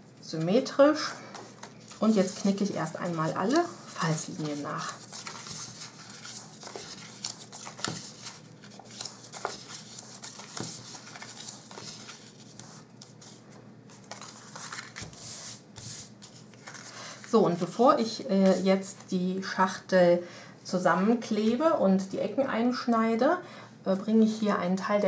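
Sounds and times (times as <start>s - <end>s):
paper crinkling and rustling: 1.3s - 17.4s.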